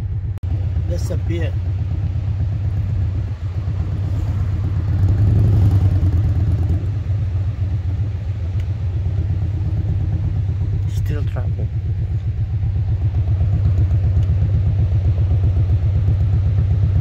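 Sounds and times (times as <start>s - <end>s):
car rumble inside cabin: 0.0s - 17.0s.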